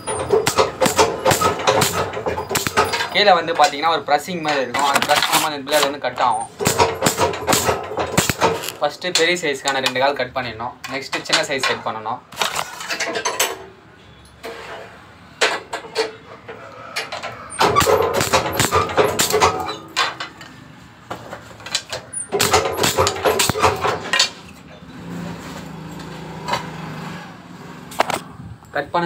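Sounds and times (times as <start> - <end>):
guillotine cutting wood clacks: 0.0 - 3.8, 6.6 - 10.0, 17.6 - 20.1, 21.7 - 24.4.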